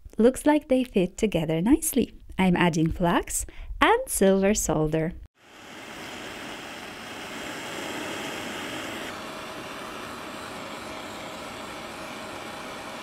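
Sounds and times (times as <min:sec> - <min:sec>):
gas torch flame roaring: 0:05.4 - 0:13.0.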